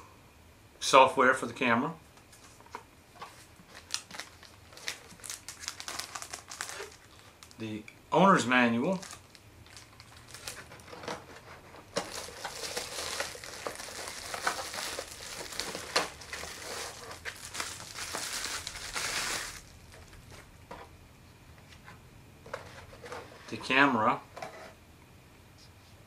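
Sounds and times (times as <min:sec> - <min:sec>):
plastic bag crinkling: 0:03.3 - 0:07.6, 0:08.8 - 0:20.5.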